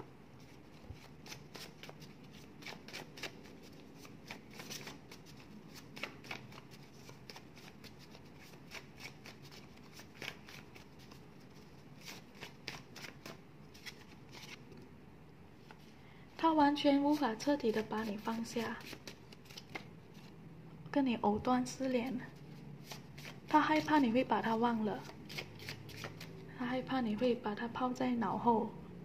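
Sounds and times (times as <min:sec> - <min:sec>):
cards being shuffled: 0:00.4 - 0:14.7, 0:17.1 - 0:20.4, 0:22.5 - 0:24.1, 0:25.0 - 0:26.4.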